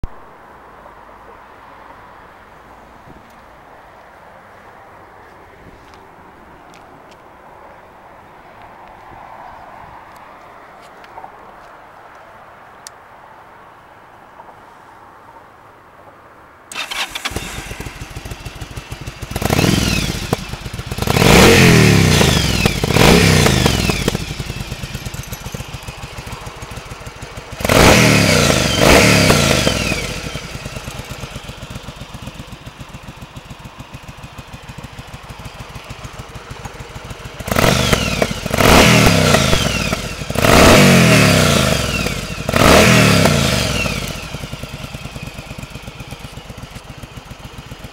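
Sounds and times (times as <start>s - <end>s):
motorcycle engine revving: 16.7s - 47.9s.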